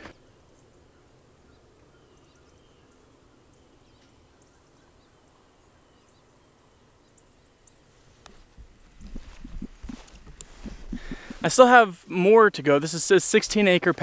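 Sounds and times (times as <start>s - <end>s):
insect drone: 0.0s - 11.6s
bird chirps: 0.5s - 7.9s.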